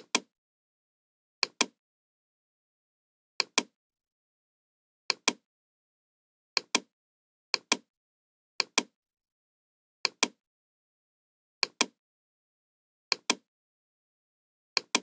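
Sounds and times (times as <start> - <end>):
computer mouse clicks: 0.0 - 0.3, 1.4 - 1.8, 3.4 - 3.7, 5.1 - 5.4, 6.6 - 6.9, 7.6 - 7.9, 8.6 - 8.9, 10.1 - 10.4, 11.6 - 12.0, 13.1 - 13.5, 14.8 - 15.0.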